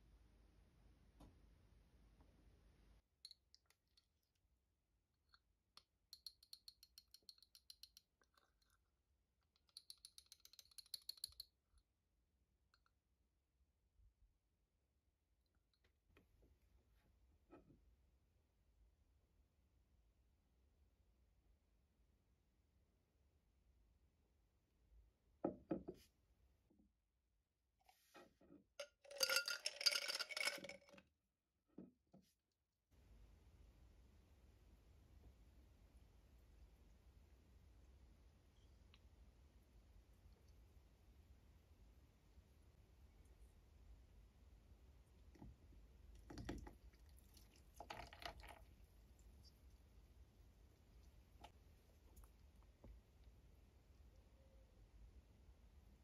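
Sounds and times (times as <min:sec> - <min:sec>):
whisk clicking against ceramic cup: 0:09.6 - 0:11.4
ice cubes clinking in glass: 0:28.8 - 0:31.0
milk pouring into glass: 0:29.1 - 0:30.9, 0:46.1 - 0:49.4.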